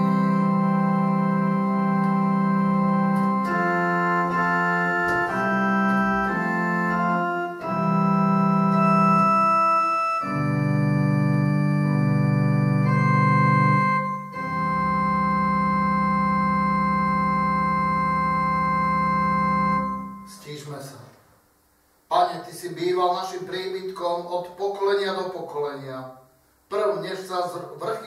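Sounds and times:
organ chords on keyboard: 0.0 - 20.9.

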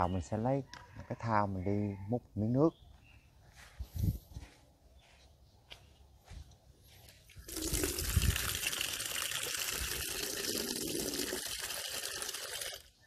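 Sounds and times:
water running into plastic basin: 7.4 - 13.0.

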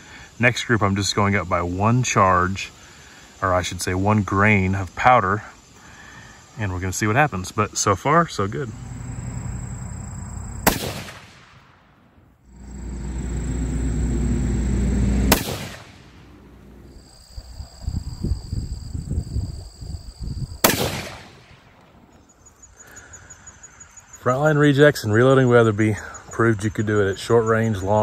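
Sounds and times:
high insect calls: 0.0 - 28.0
low rumble: 8.5 - 11.3, 12.5 - 17.0
rifle shots: 10.6 - 11.8, 14.8 - 16.9, 20.6 - 21.7.

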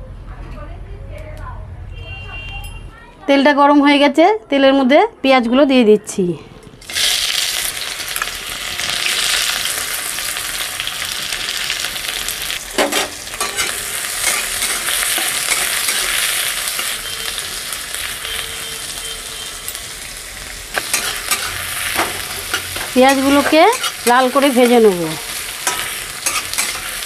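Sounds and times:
onions sizzling in hot oil: 6.8 - 27.0.

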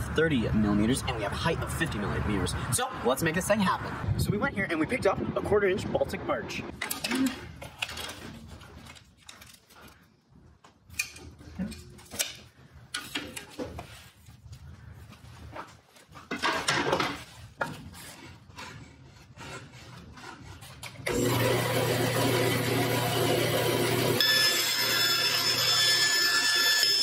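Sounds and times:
band saw motor humming: 21.1 - 27.0.

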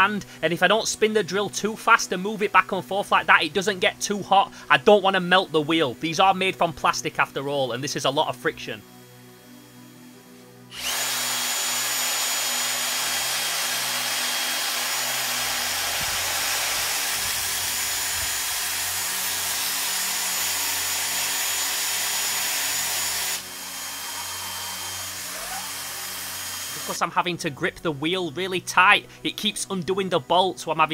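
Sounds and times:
drill motor whine: 8.8 - 27.0
sandpaper sanding hiss: 13.8 - 27.0.

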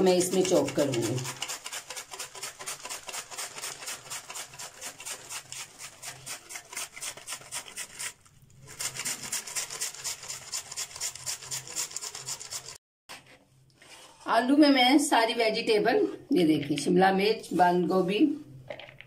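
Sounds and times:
mandoline slicer rasping cabbage: 0.0 - 14.1.

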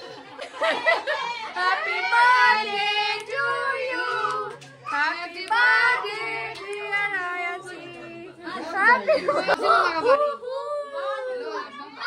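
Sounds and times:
group of people singing: 1.5 - 10.1.

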